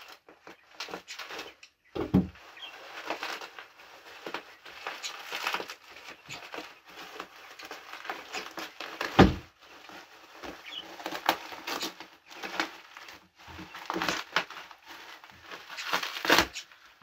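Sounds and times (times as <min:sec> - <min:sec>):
bubble wrap crinkling: 0:00.0 - 0:17.0
dull thump: 0:02.0 - 0:02.4, 0:09.2 - 0:09.5.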